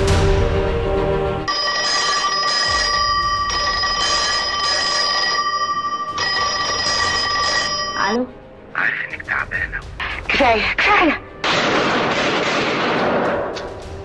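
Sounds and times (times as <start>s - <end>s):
telephone bell ringing: 1.5s - 8.2s.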